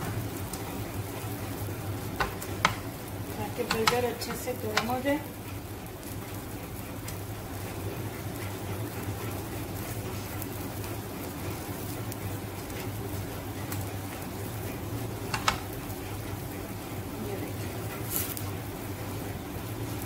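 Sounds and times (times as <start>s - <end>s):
oil sizzling on a pan: 0.0s - 20.0s
spatula clicking against pan: 2.2s - 5.1s, 15.3s - 15.8s.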